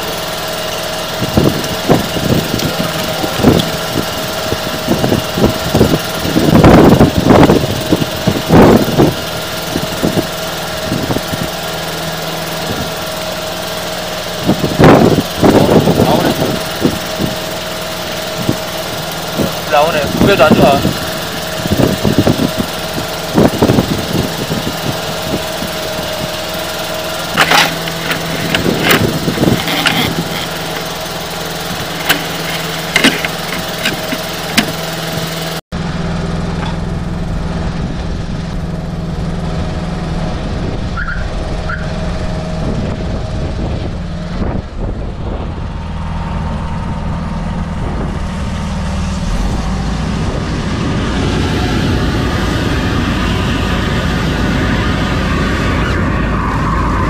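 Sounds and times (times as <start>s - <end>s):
engine running: 0.0s - 57.0s
heavy low engine hum: 0.0s - 57.0s
knocks and clatters: 27.2s - 31.0s, 31.6s - 35.4s.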